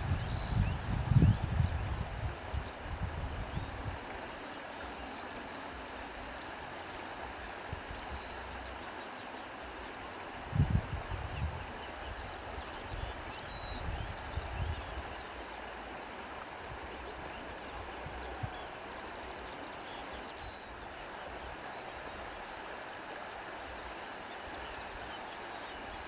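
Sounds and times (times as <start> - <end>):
rushing wind: 0.0 - 4.2, 10.3 - 15.3.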